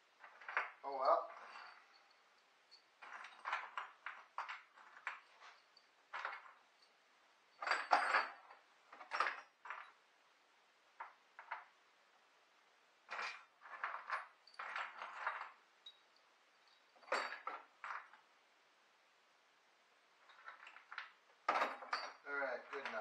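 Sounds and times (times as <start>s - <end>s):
metal tools clinking and clattering: 0.2s - 6.9s, 7.5s - 10.0s, 13.1s - 16.0s, 16.7s - 18.2s, 20.3s - 23.0s.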